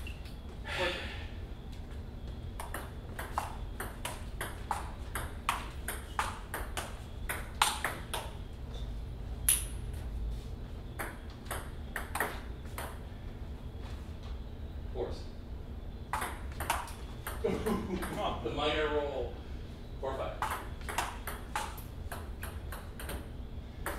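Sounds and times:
table tennis ball hitting paddles: 0:02.6 - 0:08.4, 0:10.9 - 0:13.0, 0:16.1 - 0:17.4, 0:20.4 - 0:23.9.

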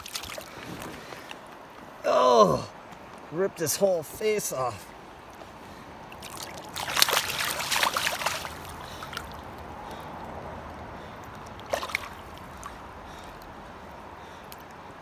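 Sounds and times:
fish splashing in water: 0:00.0 - 0:00.7, 0:06.1 - 0:09.6, 0:11.3 - 0:13.6
stream running: 0:00.0 - 0:15.0.

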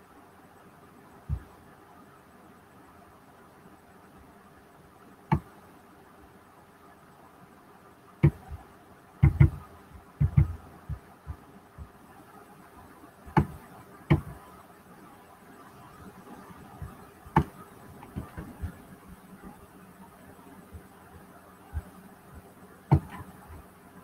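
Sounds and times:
faint steady hum: 0:00.0 - 0:24.0
dull knocks and taps: 0:05.3 - 0:05.5, 0:08.2 - 0:08.6, 0:09.2 - 0:09.6, 0:10.2 - 0:11.9, 0:13.3 - 0:14.4, 0:16.8 - 0:18.8, 0:22.9 - 0:23.3.

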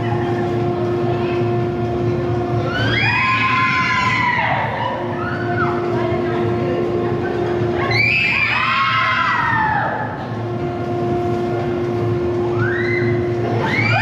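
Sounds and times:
steady hum: 0:00.0 - 0:14.0
group of people screaming: 0:02.6 - 0:05.8, 0:07.8 - 0:10.2, 0:12.5 - 0:14.0.

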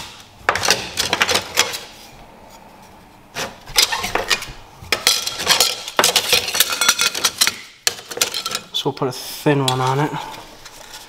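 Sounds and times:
metal parts clinking and scraping: 0:03.8 - 0:08.8.

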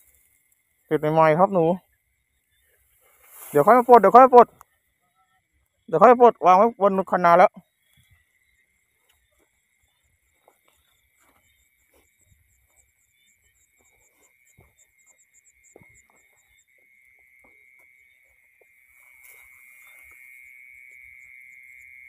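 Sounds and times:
high insect chirps: 0:00.0 - 0:22.0
insects buzzing: 0:00.0 - 0:22.0
leaves brushing: 0:02.7 - 0:04.6.

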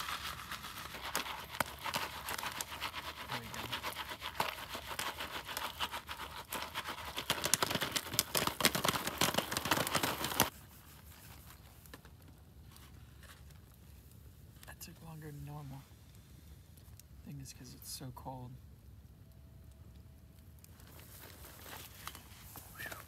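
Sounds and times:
popcorn pan rattling: 0:00.0 - 0:10.5.

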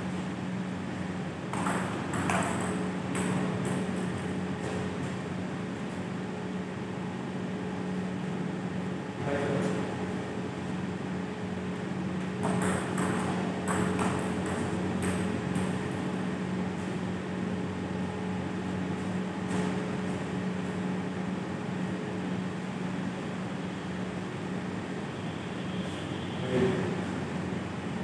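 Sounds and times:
steady low hum: 0:00.0 - 0:28.0
table tennis ball bouncing: 0:01.5 - 0:04.2, 0:12.4 - 0:16.0.

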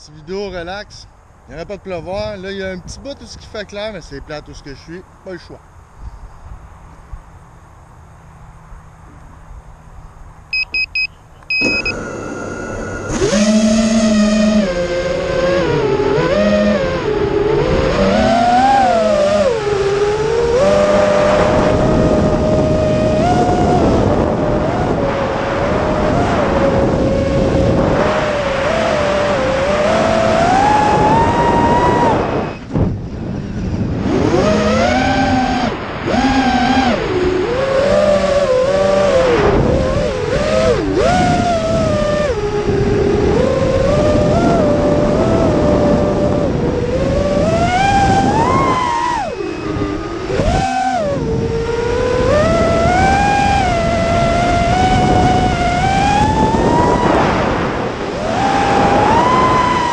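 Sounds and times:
short electronic beeps: 0:10.5 - 0:14.2
quadcopter motors whining: 0:10.5 - 0:59.9.

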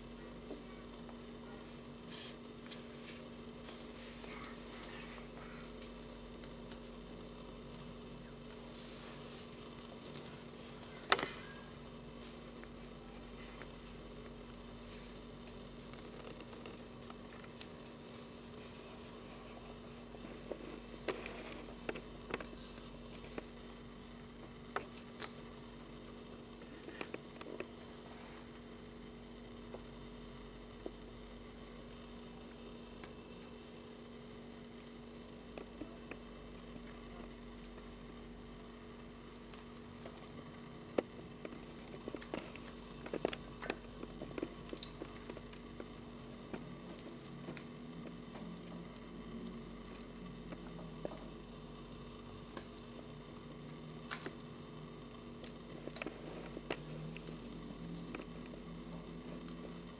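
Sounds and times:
low electrical hum: 0:00.0 - 0:59.9.

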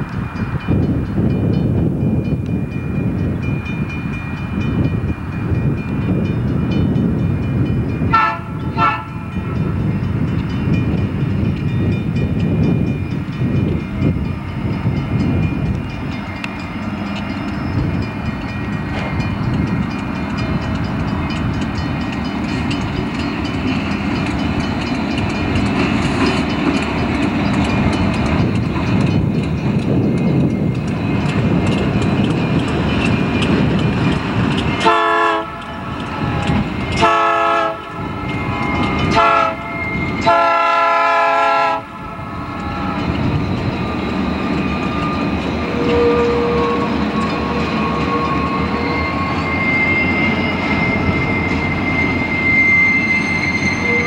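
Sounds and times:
train engine rumble and rail noise: 0:00.0 - 0:54.0
train horn blasts: 0:08.1 - 0:09.5, 0:34.8 - 0:43.0, 0:45.7 - 0:49.1, 0:53.6 - 0:54.0.

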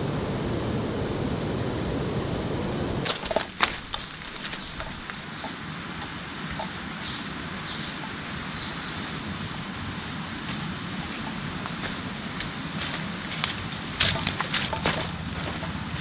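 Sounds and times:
high steady piping note: 0:04.5 - 0:16.0.

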